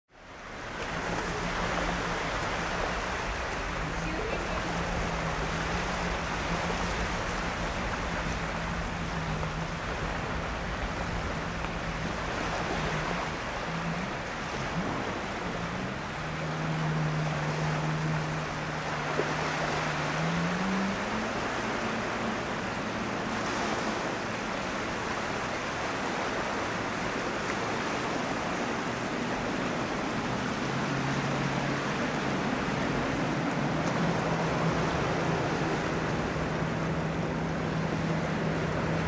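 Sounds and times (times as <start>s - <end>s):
low wavering hum: 0.2s - 39.0s.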